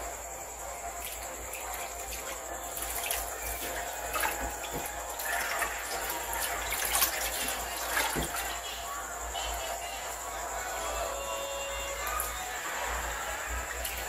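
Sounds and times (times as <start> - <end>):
water splashing and dripping: 0.9 - 8.8, 13.5 - 14.0.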